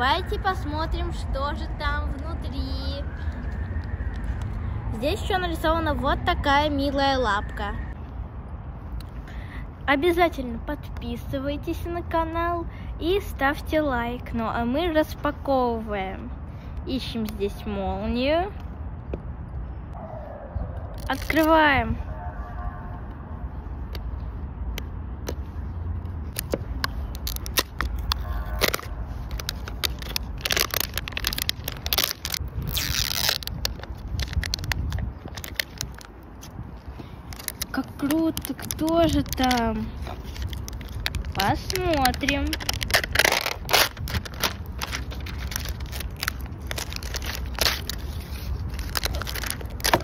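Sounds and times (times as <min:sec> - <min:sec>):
plastic wrapper crinkling: 0:20.9 - 0:21.6, 0:26.3 - 0:36.6, 0:37.3 - 0:50.0.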